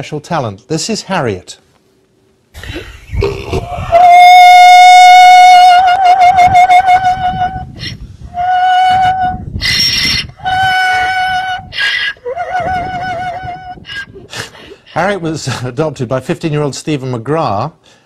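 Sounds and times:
donkey braying: 2.6s - 15.4s.

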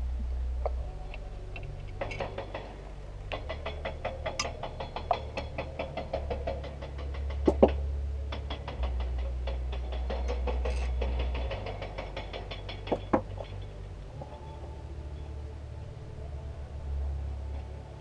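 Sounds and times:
engine idling with light ticking: 0.0s - 18.0s.

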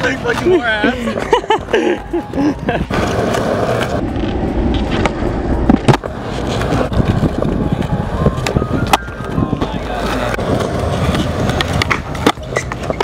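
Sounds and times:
skateboard clacking on ground: 0.0s - 1.7s, 2.9s - 13.0s
person laughing: 0.0s - 3.1s
skateboard wheels rolling on concrete: 0.0s - 13.0s.

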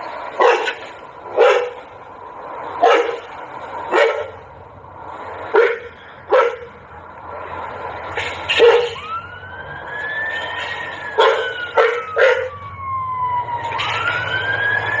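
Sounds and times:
emergency vehicle siren wailing: 0.0s - 15.0s
dog barking sharply: 1.4s - 1.8s, 11.2s - 12.5s.

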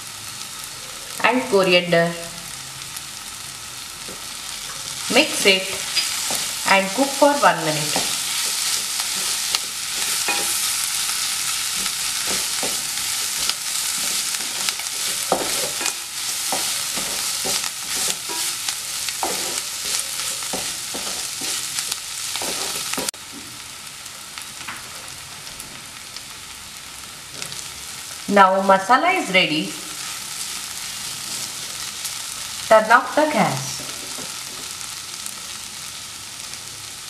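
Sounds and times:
vegetables sizzling in oil: 0.0s - 37.0s
wooden spatula scraping pan: 11.8s - 23.1s.

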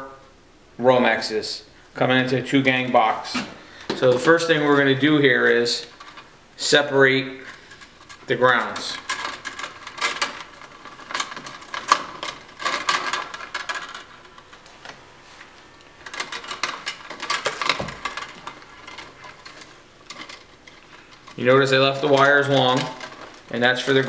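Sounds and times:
wires rustling and scraping: 1.9s - 24.0s.

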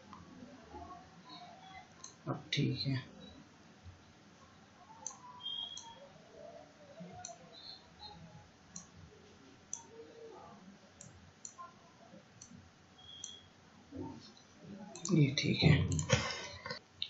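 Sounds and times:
computer mouse clicking: 5.0s - 6.0s, 7.2s - 7.4s, 8.7s - 8.9s, 9.7s - 9.9s, 11.0s - 11.6s, 12.4s - 13.4s, 15.0s - 15.2s, 15.9s - 16.2s.

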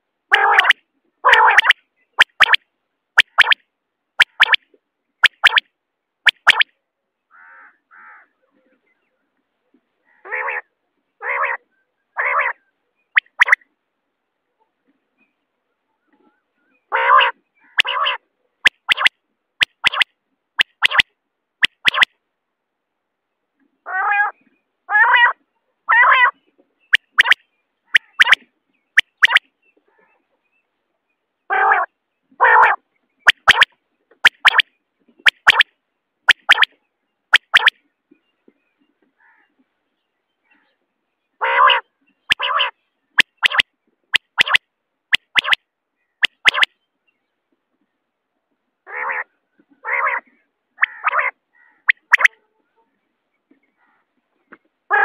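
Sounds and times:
quail calls: 0.3s - 2.6s, 12.2s - 12.6s, 16.9s - 21.0s, 23.9s - 30.2s, 31.5s - 34.6s, 36.3s - 36.7s, 37.4s - 37.8s, 41.4s - 43.6s, 44.2s - 45.6s, 46.2s - 46.7s, 48.9s - 52.4s.

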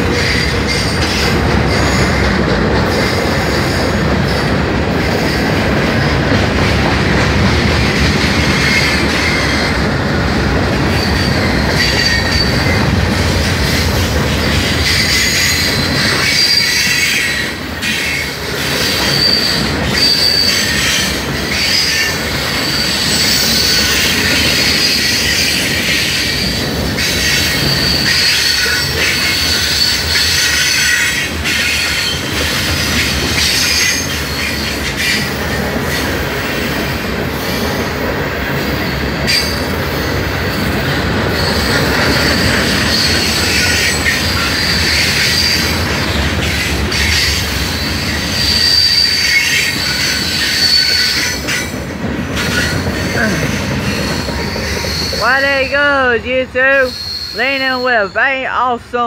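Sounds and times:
train wheels rumbling on rail: 0.0s - 59.0s
high-pitched wheel squeal: 14.8s - 32.2s, 46.9s - 51.7s, 56.9s - 58.0s.

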